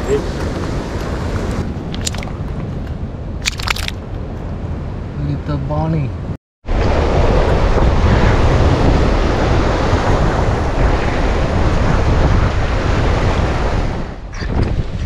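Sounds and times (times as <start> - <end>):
wind buffeting microphone: 6.7 - 15.0.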